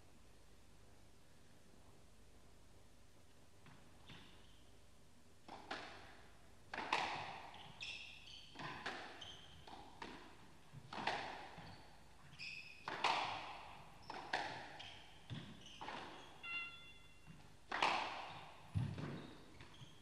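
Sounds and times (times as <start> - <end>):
squash ball hitting rackets and walls: 5.4 - 20.0
shoes squeaking on floor: 7.4 - 10.0, 11.0 - 13.0, 13.9 - 20.0.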